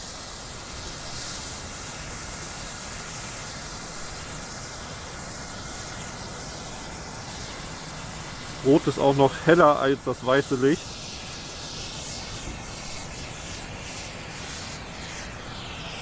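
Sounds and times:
flare burning with a hiss: 0:00.0 - 0:16.0.

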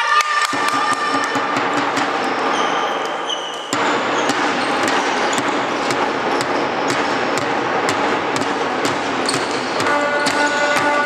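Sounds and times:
echoing hall noise: 0:00.0 - 0:11.0
players' footsteps: 0:00.5 - 0:11.0
ball bouncing on wooden floor: 0:01.9 - 0:11.0
shoe squeaks: 0:02.2 - 0:06.7, 0:09.3 - 0:11.0.

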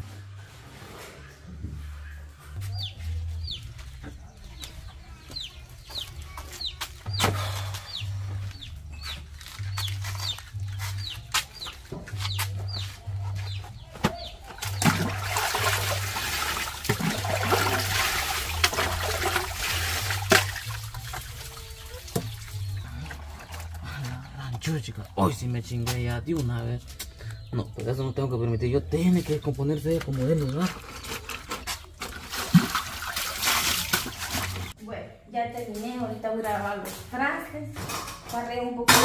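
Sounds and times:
chicks peeping: 0:01.8 - 0:14.9, 0:20.9 - 0:31.9
water sloshing from scrubbing clothes: 0:14.4 - 0:25.4, 0:30.0 - 0:34.8.

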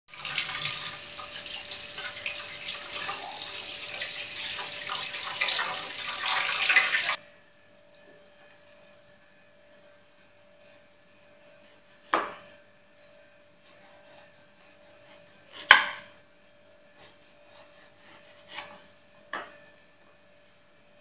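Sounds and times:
tap water running into sink: 0:00.1 - 0:07.2.

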